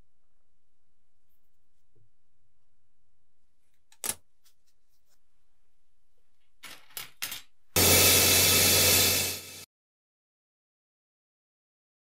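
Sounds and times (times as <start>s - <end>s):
loud steady hiss: 7.8s - 9.6s.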